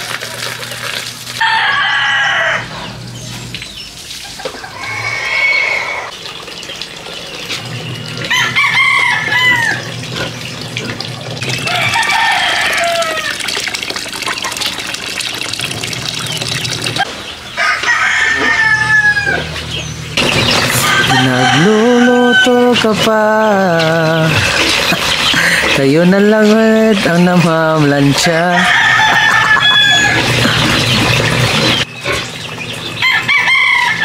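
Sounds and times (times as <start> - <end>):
roosters crowing: 1.3 - 3.2, 4.3 - 6.2, 8.2 - 10.4, 11.4 - 13.6, 17.3 - 31.9, 32.8 - 34.0.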